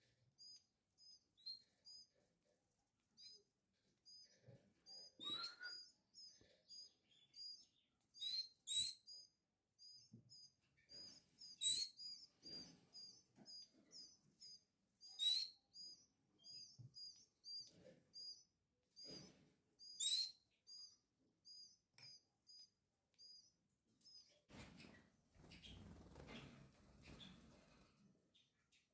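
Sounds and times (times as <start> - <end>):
chicks cheeping: 3.2 - 28.9.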